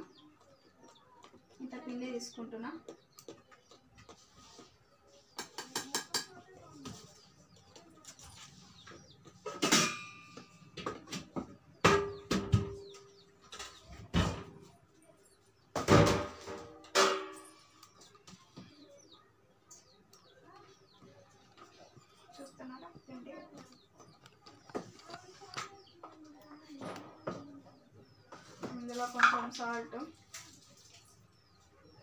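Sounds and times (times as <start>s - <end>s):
steel vessels clanking: 9.4s - 10.7s, 16.3s - 17.8s.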